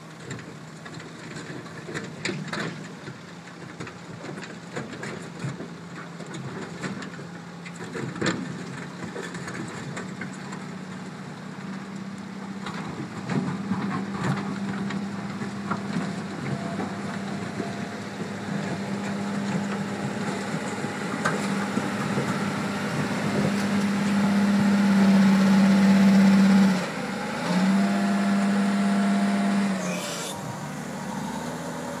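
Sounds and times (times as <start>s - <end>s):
wheel loader diesel engine: 0.0s - 32.0s.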